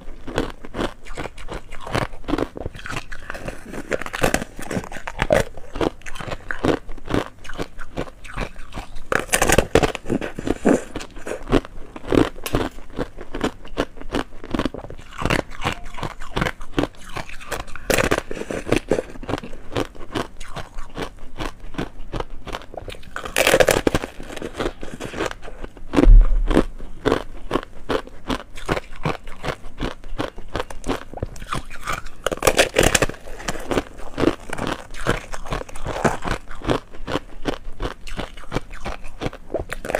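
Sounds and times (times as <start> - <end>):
crunching ice: 0.3 - 27.6, 30.6 - 39.9
loud low thump: 26.0 - 26.8.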